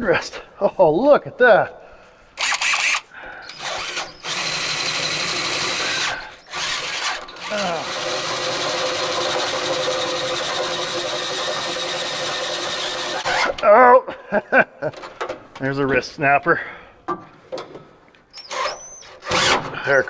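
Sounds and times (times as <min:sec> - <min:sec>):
cordless drill boring metal: 0:02.4 - 0:13.6.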